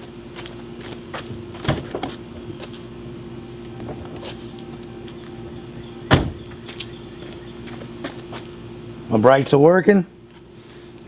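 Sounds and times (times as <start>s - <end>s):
insect drone like crickets: 0.0s - 11.0s
low hum: 0.9s - 9.1s.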